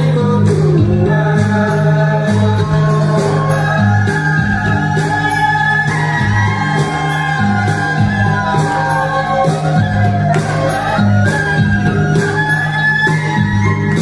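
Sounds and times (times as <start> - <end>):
folk dance music with singer: 0.0 - 14.0
people shouting and whooping: 3.0 - 14.0.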